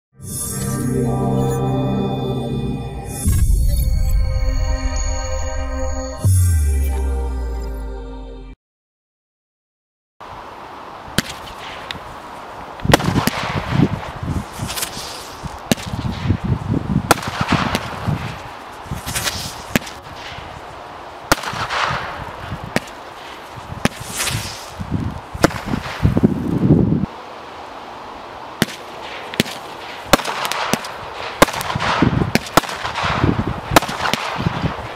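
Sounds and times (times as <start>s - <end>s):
fireworks shots: 11.2s - 11.9s, 12.9s - 16.4s, 17.0s - 18.4s, 19.0s - 20.5s, 21.3s - 24.8s, 25.4s - 26.3s, 28.6s - 34.9s.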